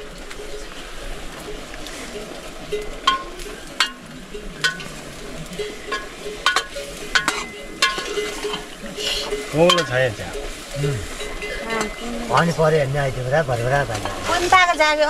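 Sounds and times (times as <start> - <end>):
metal spoon clinking on pan: 5.9 - 10.5.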